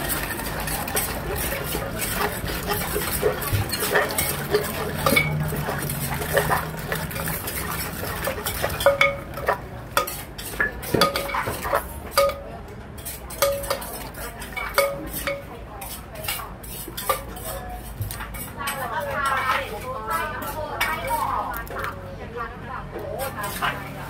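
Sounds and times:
spoon scraping in clay mortar: 0:00.0 - 0:12.4, 0:13.0 - 0:22.0, 0:23.2 - 0:24.0.

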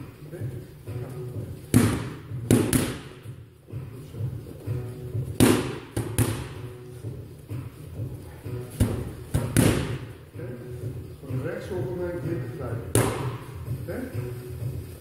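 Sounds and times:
background music: 0:00.0 - 0:15.0
boxing gloves smacking focus mitts: 0:01.6 - 0:03.3, 0:05.4 - 0:06.6, 0:08.7 - 0:10.1.

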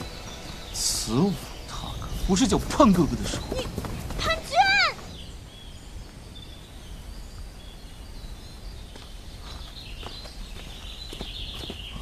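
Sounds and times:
low background hiss: 0:00.0 - 0:11.0
faint bird chirps and trill: 0:00.0 - 0:12.0.

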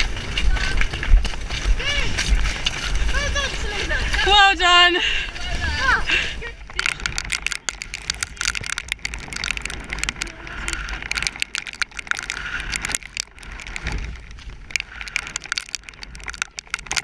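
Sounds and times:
dense crackling: 0:05.4 - 0:17.0
horse tack jingling: 0:06.7 - 0:17.0.

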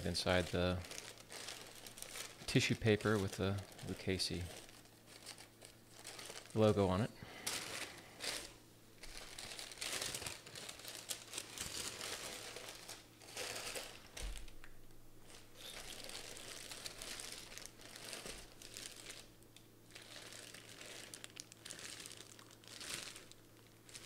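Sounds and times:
tissue paper and plastic crinkling: 0:00.0 - 0:14.6, 0:15.2 - 0:24.0.

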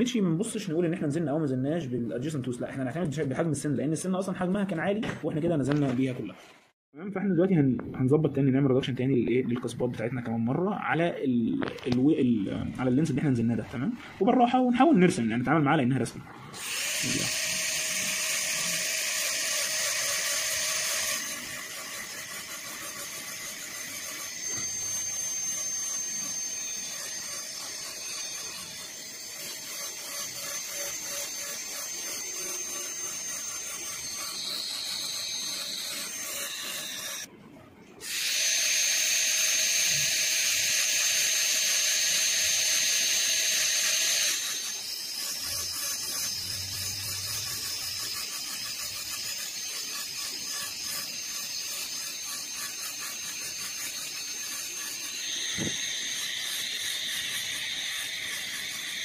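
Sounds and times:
dental drill whining: 0:16.5 - 0:37.3, 0:38.0 - 0:59.0.

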